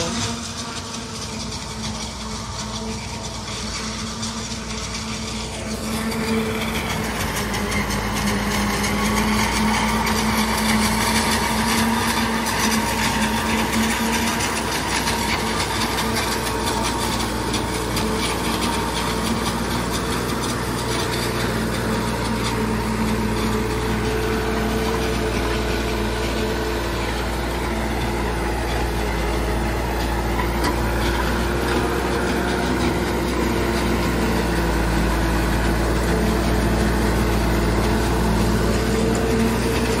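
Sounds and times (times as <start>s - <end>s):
harvester whirring and chopping: 0.0s - 40.0s
tractor engine under load: 0.0s - 40.0s.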